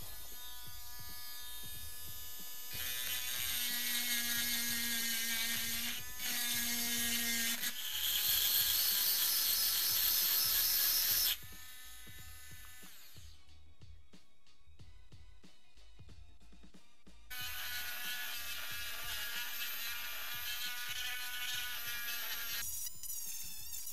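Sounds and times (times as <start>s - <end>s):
rotary tool motor whine: 2.7s - 13.3s, 17.3s - 23.9s.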